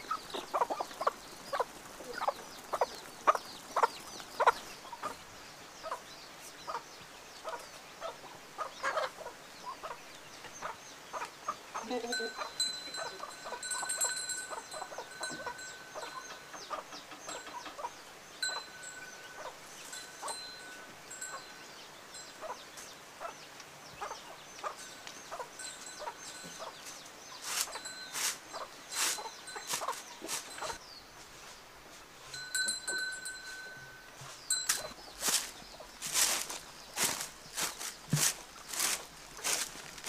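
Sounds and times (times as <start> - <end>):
chickens clucking: 0.0 - 21.6, 22.4 - 30.8, 32.3 - 40.0.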